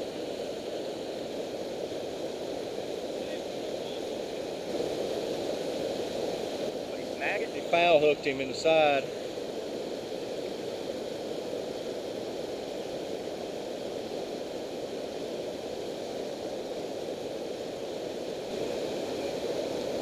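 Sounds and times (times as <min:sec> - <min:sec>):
water rushing over dam spillway: 0:00.0 - 0:09.2, 0:11.0 - 0:20.0.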